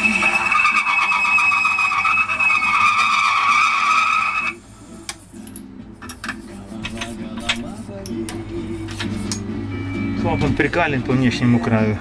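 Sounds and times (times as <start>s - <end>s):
high-pitched grinding squeal: 0.0s - 4.6s.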